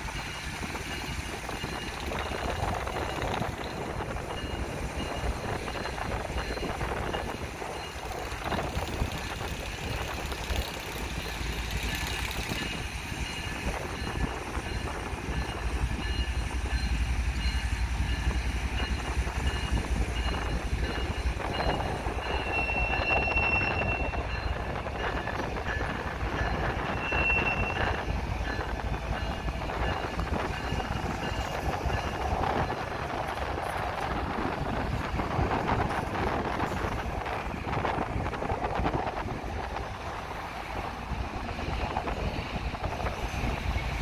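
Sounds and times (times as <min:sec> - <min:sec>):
freight train rumbling on rails: 0:00.0 - 0:44.0
train wheels squealing: 0:00.1 - 0:32.8, 0:41.6 - 0:44.0.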